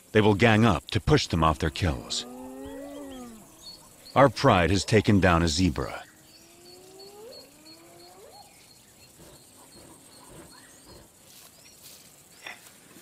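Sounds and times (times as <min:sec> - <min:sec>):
low rising calls: 0:01.2 - 0:11.2
bird chirping: 0:01.5 - 0:12.6.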